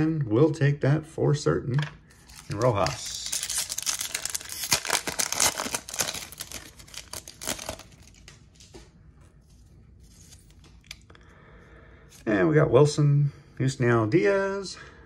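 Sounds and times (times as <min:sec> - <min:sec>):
wrapper crinkling: 0:02.2 - 0:08.7.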